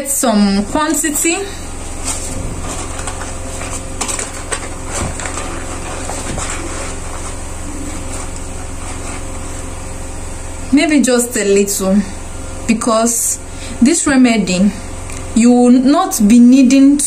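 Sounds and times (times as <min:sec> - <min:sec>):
room hum: 0:00.0 - 0:17.0
paper wrapping rustling and crackling: 0:01.7 - 0:09.6.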